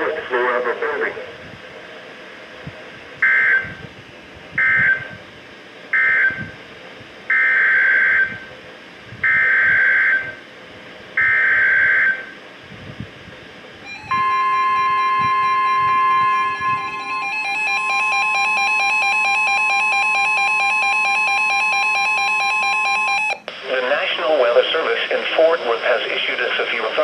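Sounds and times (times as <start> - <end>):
steady weather alert tone: 0.0 - 27.0
radio alarm: 3.2 - 3.8, 4.6 - 5.2, 5.9 - 6.6, 7.3 - 8.5, 9.2 - 10.4, 11.2 - 12.4, 13.8 - 24.2
buzzy data bursts: 13.8 - 23.4.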